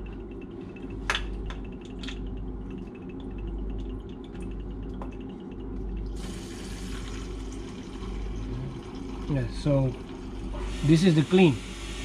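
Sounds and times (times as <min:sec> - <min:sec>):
low machinery hum: 0:00.0 - 0:12.0
fuel draining hiss: 0:10.5 - 0:12.0.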